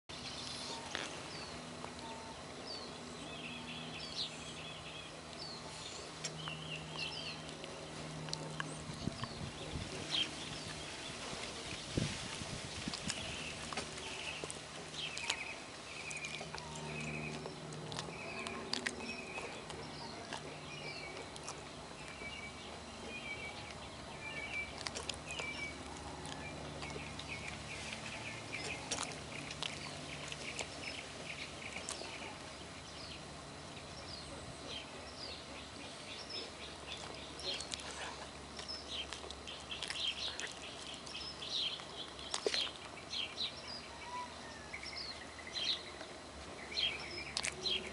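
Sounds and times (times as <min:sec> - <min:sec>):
birds chirping: 0:00.1 - 0:47.9
low steady hum: 0:00.1 - 0:47.9
dog chewing and licking: 0:12.8 - 0:32.3, 0:36.3 - 0:42.9, 0:47.2 - 0:47.9.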